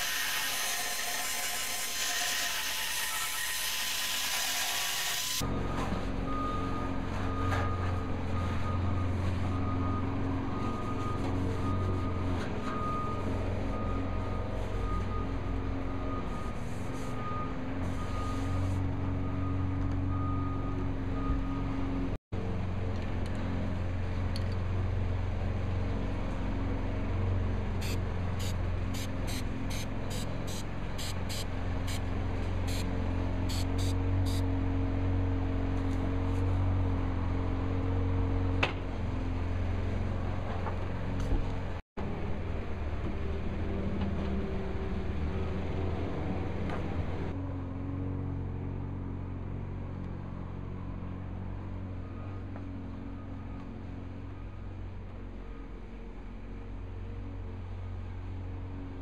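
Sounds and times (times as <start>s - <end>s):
reversing alarm beeping: 5.4s - 22.0s, 33.5s - 34.4s
low vehicle engine hum: 5.4s - 59.0s.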